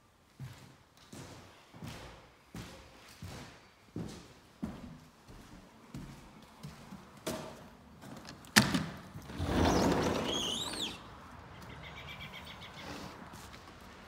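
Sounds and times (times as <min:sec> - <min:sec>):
sliding glass door rumbling: 0:09.0 - 0:11.1.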